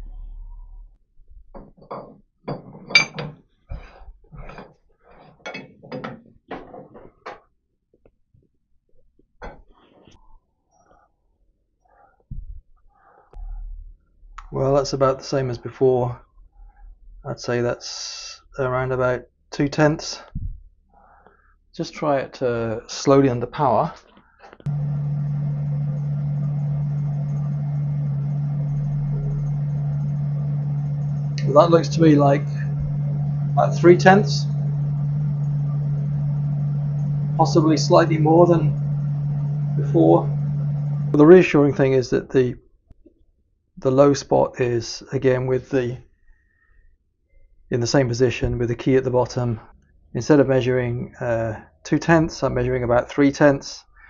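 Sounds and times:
metal knocks scrapes and clinks: 1.7s - 3.4s, 4.4s - 7.0s
lathe motor humming: 24.7s - 41.3s.

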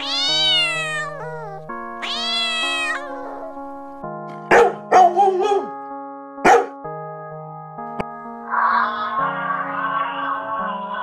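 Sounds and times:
kitten meowing: 0.0s - 3.6s
keyboard music: 0.0s - 11.0s
small dog barking: 4.5s - 5.7s, 6.4s - 6.8s.

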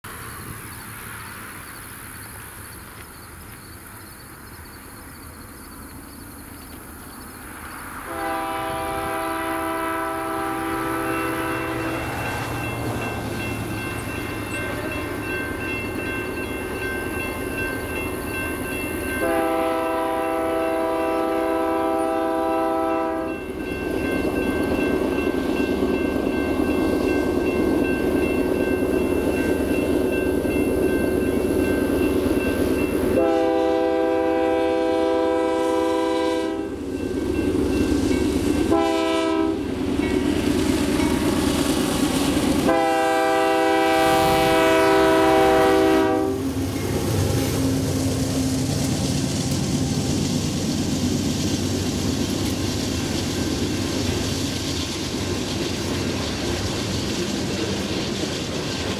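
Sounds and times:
train rumbling on rails: 0.0s - 58.9s
locomotive air horn blasts: 8.0s - 12.2s, 19.2s - 23.4s, 33.1s - 36.8s, 38.7s - 39.7s, 42.6s - 46.6s.

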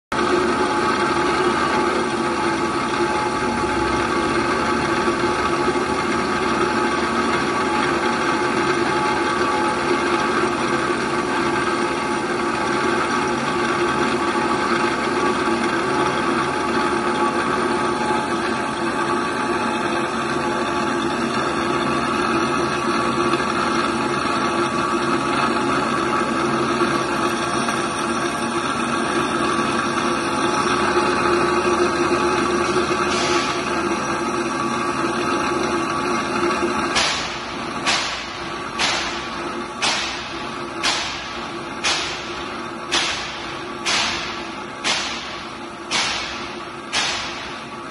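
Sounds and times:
grinding wheel hiss: 25.7s - 47.9s.

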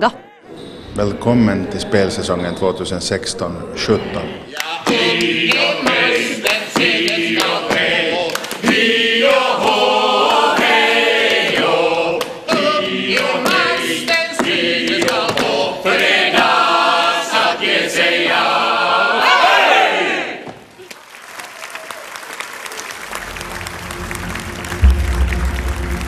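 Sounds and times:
group of people singing: 3.7s - 20.4s
sharp percussive hits: 23.1s - 26.0s.

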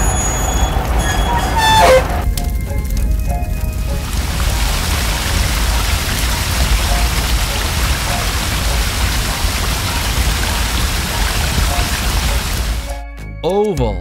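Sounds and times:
hiss of spraying water: 4.2s - 12.9s.

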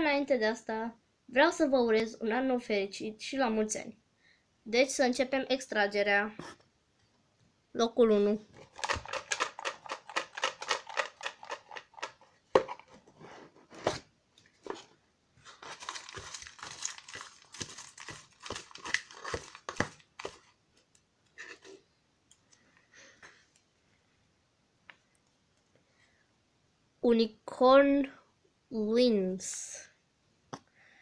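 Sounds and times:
paper slips rattling in a box: 8.6s - 12.2s, 15.5s - 20.5s
hand rustling through paper slips: 8.6s - 12.3s, 14.6s - 20.5s.

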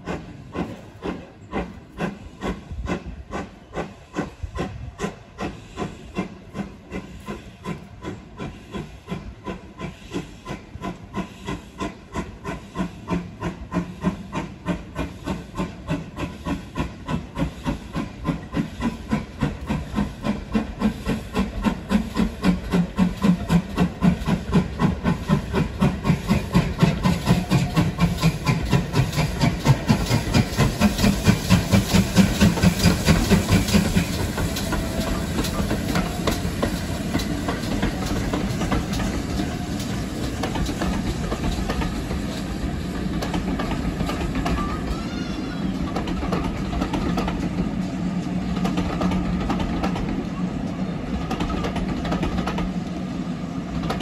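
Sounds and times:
steam locomotive exhaust beats: 0.0s - 54.0s
train rolling noise: 0.0s - 54.0s.

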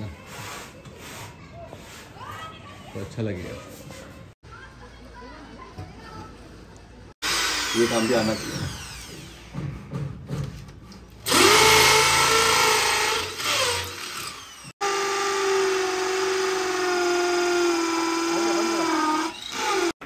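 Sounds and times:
power drill running: 7.2s - 9.6s, 11.2s - 20.0s.

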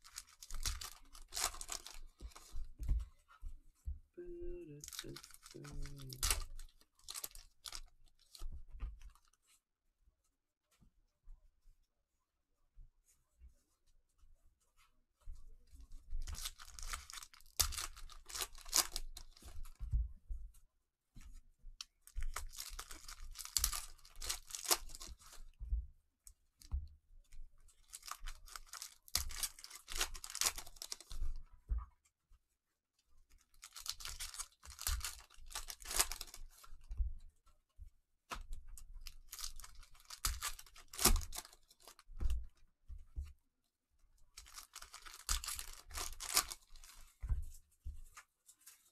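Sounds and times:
cellophane wrappers ripping and crinkling: 0.0s - 2.6s, 4.7s - 8.4s, 16.2s - 19.7s, 22.0s - 25.5s, 27.8s - 31.2s, 33.3s - 36.7s, 39.0s - 42.2s, 44.3s - 47.2s.

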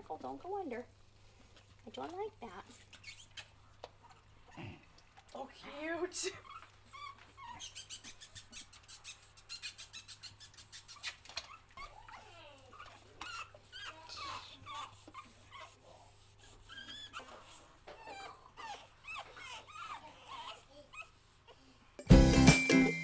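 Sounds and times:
puppies whining and squeaking: 2.8s - 4.6s, 5.8s - 21.8s.

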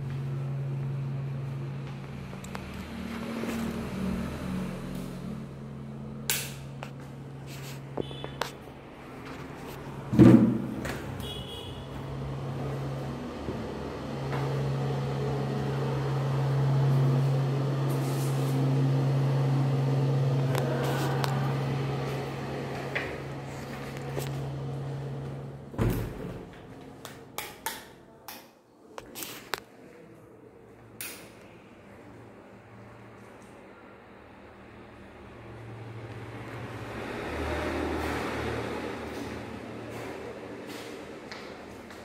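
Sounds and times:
loud thump: 10.1s - 10.8s
steady low hum: 11.2s - 25.8s.

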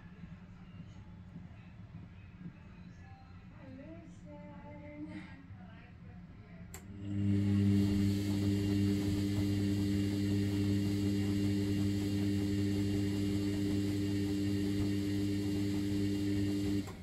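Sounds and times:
washing machine motor hum: 6.7s - 17.0s.

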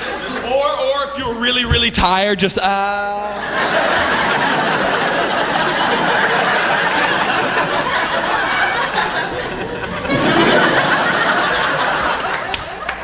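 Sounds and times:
audience laughing: 0.0s - 0.5s, 3.3s - 13.0s.

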